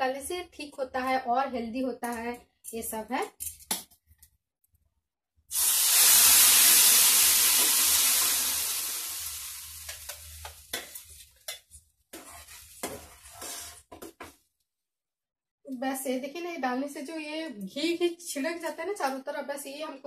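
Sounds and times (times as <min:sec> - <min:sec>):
lentils sizzling in hot ghee: 0:05.5 - 0:13.9
spoon scraping pan: 0:09.9 - 0:14.1.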